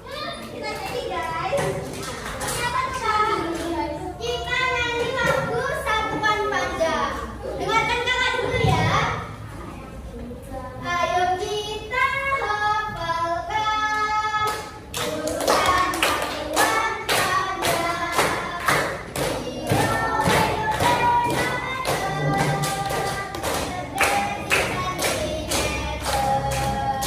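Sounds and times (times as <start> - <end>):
steady beat of sharp strokes: 14.6 - 27.0.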